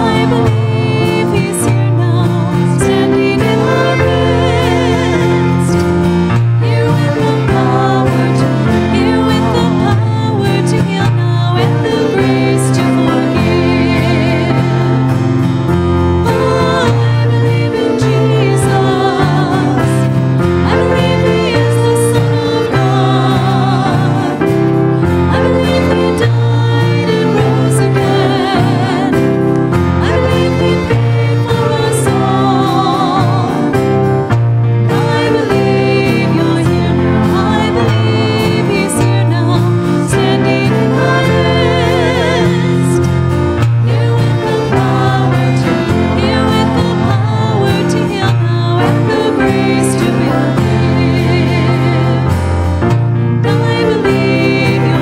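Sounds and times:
violins playing: 0.0s - 55.0s
women singing: 0.0s - 55.0s.

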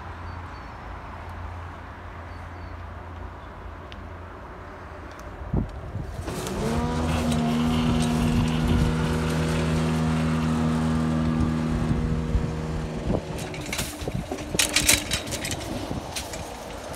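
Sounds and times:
barrier motor whining: 6.1s - 16.9s.

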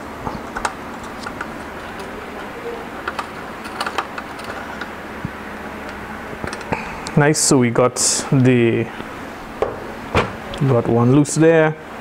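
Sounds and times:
steady background hum: 0.0s - 12.0s.

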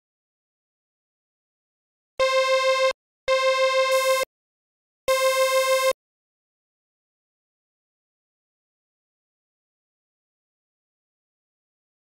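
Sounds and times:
bright synthesizer note: 3.9s - 4.3s.

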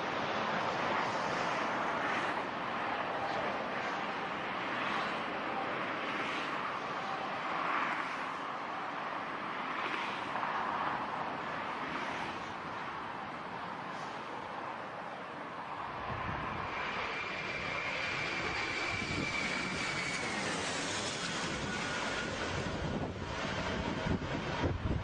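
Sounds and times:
jet airliner landing: 0.0s - 8.7s, 15.4s - 25.0s
wind buffeting microphone: 18.2s - 25.0s.

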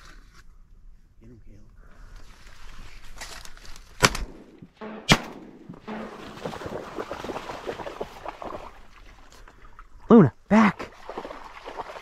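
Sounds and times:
shotgun shots: 4.0s - 6.6s.

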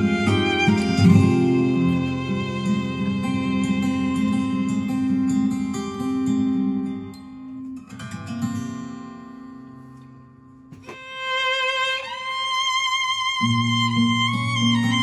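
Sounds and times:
plucked guitar notes: 0.0s - 8.6s.

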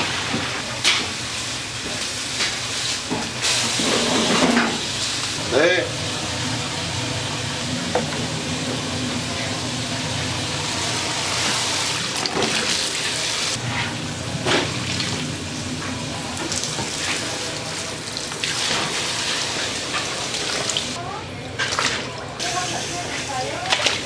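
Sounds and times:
water running from a tap: 5.3s - 13.6s, 14.6s - 21.0s.

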